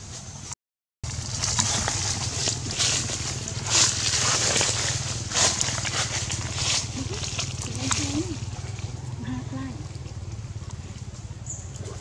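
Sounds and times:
dry leaves rustling: 1.0 - 9.3
steady low rumble: 1.0 - 12.0.

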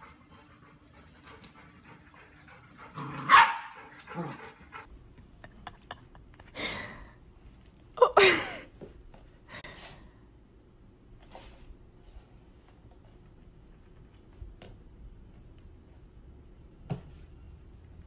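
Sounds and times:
puppy barking: 3.1 - 3.8.

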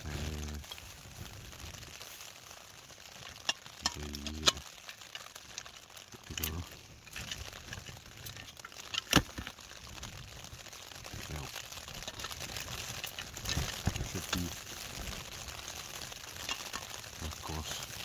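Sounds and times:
steady gas hiss: 0.0 - 4.7, 11.0 - 11.6, 12.4 - 15.4, 16.6 - 18.0
camping stove clicks and clunks: 3.2 - 6.5, 7.1 - 9.6, 13.0 - 14.4, 16.4 - 17.0.

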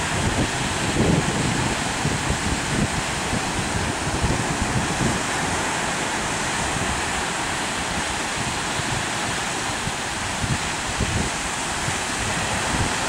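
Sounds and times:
small surf on beach: 0.0 - 13.0
wind buffeting microphone: 0.0 - 13.0.

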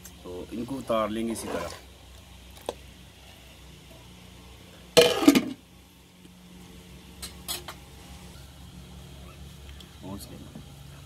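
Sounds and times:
metal plate clattering on pot: 5.0 - 5.6.

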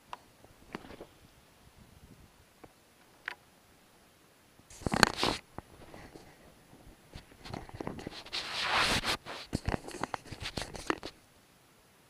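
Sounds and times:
fingers rubbing on camera housing: 4.7 - 6.4, 7.2 - 11.2.

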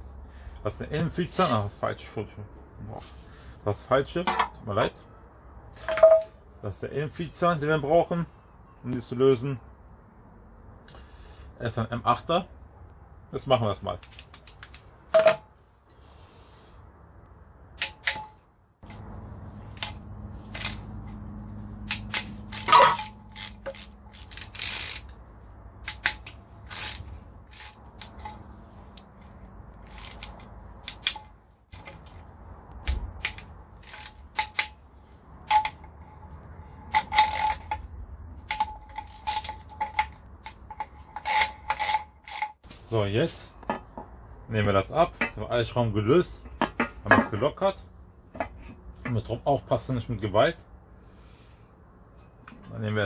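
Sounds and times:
ratchet clicking: 19.7 - 20.9, 21.8 - 25.2, 25.8 - 29.0, 29.8 - 32.2, 32.8 - 34.8, 36.9 - 42.6.

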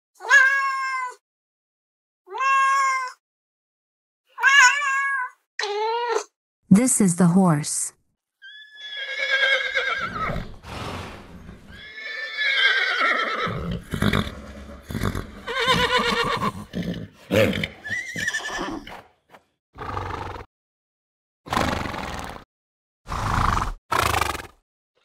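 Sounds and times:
horse whinnying: 8.4 - 18.9
horse breathy snorts: 10.3 - 11.7, 13.5 - 17.9, 21.5 - 22.4, 23.1 - 24.6.

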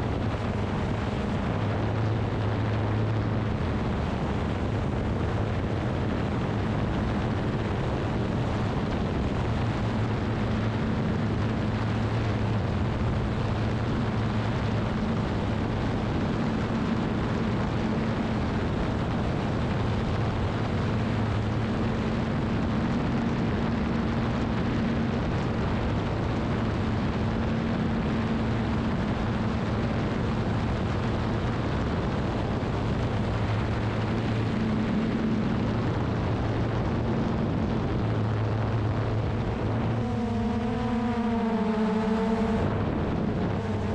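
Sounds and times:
drone propellers rushing: 0.0 - 43.9
high wavering motor hum: 33.5 - 43.9.

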